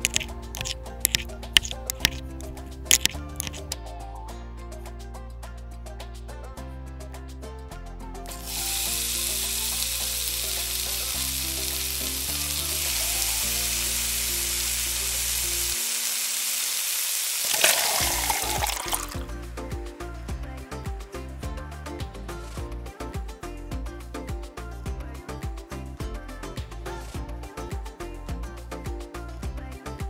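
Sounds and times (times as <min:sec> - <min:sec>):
butter sizzling in pot: 0:00.0 - 0:03.8, 0:08.3 - 0:19.3.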